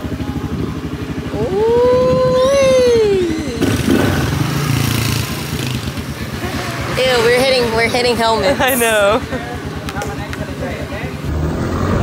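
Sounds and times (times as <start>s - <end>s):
scooter engine running: 0.0s - 12.0s
person shouting woo: 1.3s - 3.7s.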